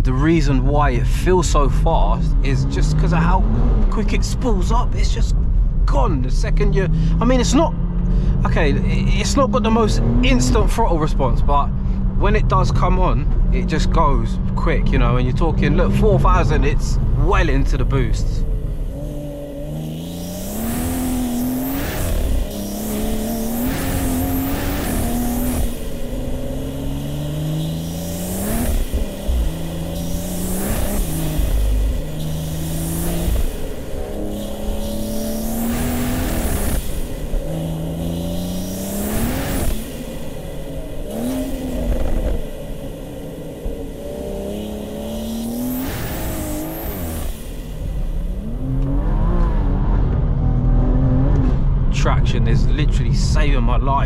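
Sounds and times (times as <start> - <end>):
car engine accelerating: 0.0 - 54.0
turbo induction whoosh: 13.6 - 54.0.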